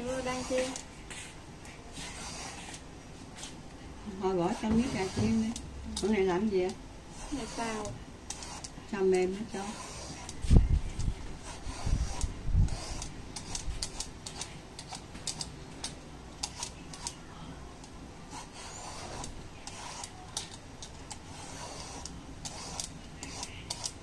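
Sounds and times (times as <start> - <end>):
peeler scraping gourd skin: 9.5 - 15.0, 18.3 - 24.0.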